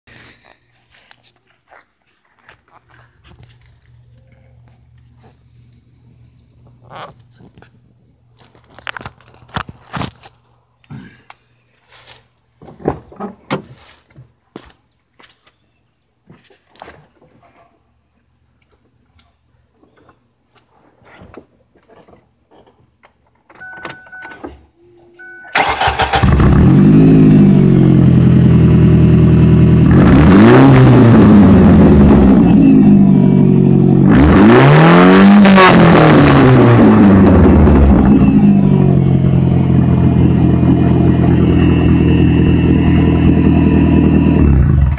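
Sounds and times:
short beeps: 23.6 - 25.6
car engine idling and revving: 25.6 - 44.9.

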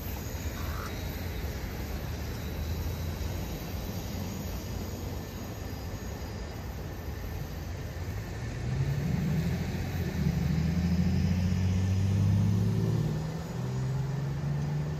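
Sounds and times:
vehicle engine passing by: 8.4 - 14.9.

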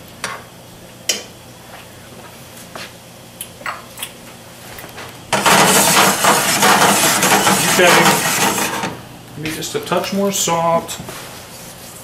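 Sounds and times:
loud rustling: 5.4 - 8.9
utensils clicking on pan: 5.4 - 8.9.

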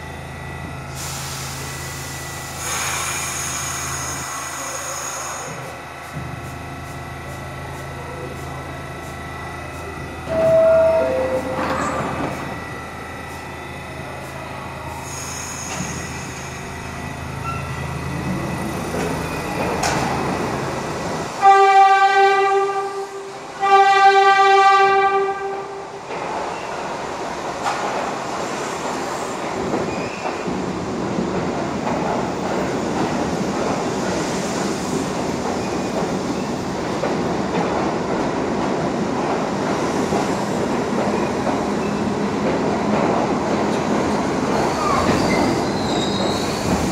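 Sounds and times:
rumble of train wheels and motors: 0.0 - 46.9
subway train horn blasts: 10.2 - 12.8, 21.3 - 26.1.

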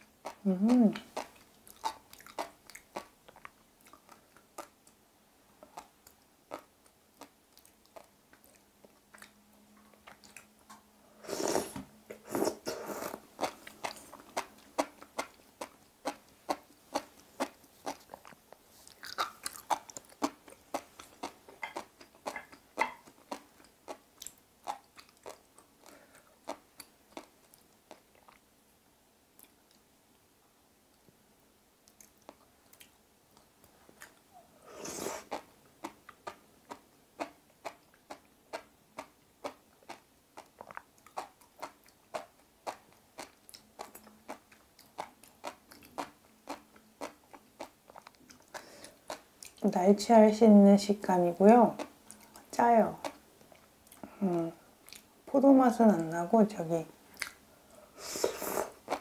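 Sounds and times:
chewing seaweed with crunchy pops: 0.1 - 5.0, 13.4 - 28.5, 35.3 - 49.6, 51.8 - 54.2.

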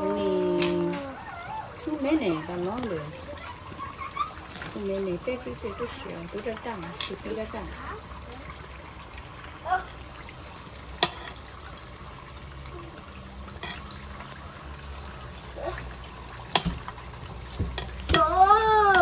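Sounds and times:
food sizzling in hot oil: 4.5 - 19.0.

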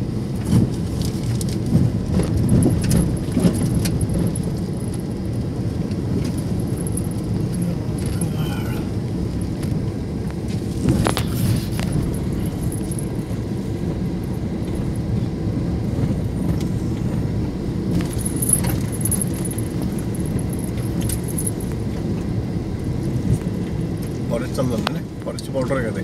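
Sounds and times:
car engine and tyre rumble: 0.0 - 26.0
rattling and clinking: 1.0 - 9.8, 10.8 - 15.3, 17.8 - 22.4.

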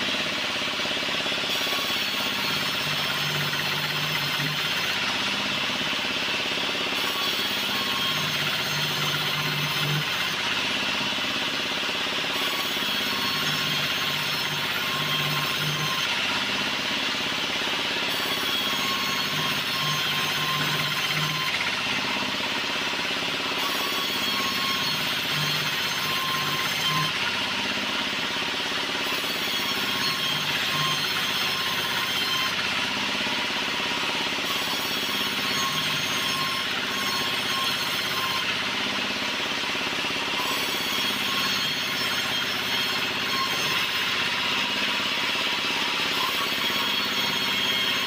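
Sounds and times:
band saw cutting wood: 0.0 - 48.0.

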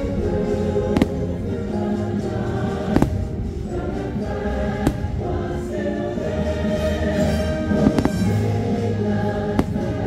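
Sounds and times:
choir singing: 0.0 - 10.0
firework bangs: 9.4 - 10.0.

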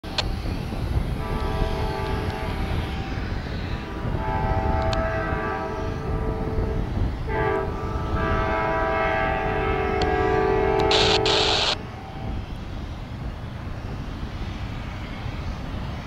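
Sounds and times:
locomotive air horn chord: 1.2 - 3.2, 3.8 - 11.8.

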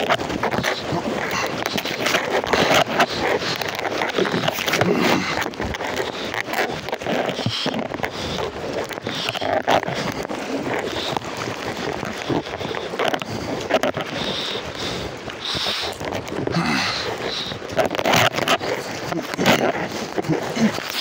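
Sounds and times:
rushing floodwater: 0.0 - 21.0.

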